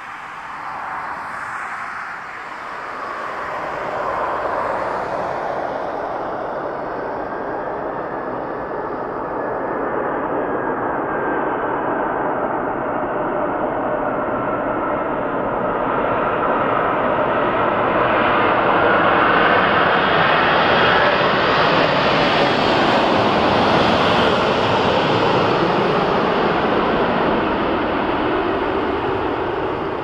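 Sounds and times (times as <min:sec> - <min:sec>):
jet engines roaring: 0:00.0 - 0:30.0.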